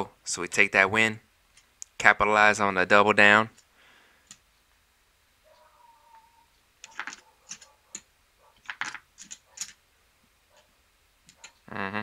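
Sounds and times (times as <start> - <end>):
casino chips clacking: 6.8 - 8.0, 8.6 - 9.8.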